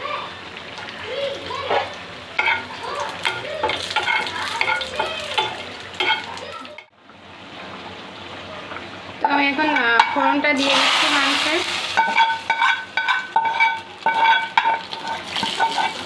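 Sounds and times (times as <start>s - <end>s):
spices sizzling in hot oil: 0.1s - 6.9s, 7.6s - 16.0s
spatula scraping a pan: 2.4s - 6.3s, 11.9s - 16.0s.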